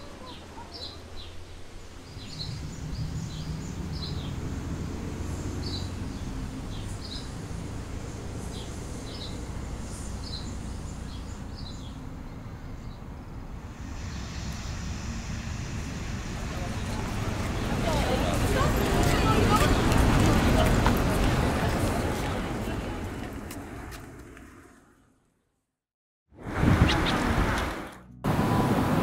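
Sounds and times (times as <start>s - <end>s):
small birds chirping: 0.0s - 13.2s, 26.8s - 27.2s
steady low rumble: 12.4s - 19.0s.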